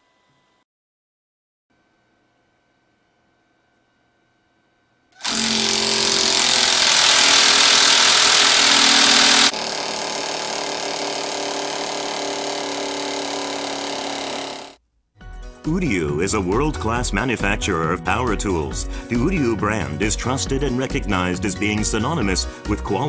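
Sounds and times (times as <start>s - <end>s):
impact wrench hammering bolt: 5.2s - 14.8s
oil pulse wrench pulsing: 5.2s - 14.8s.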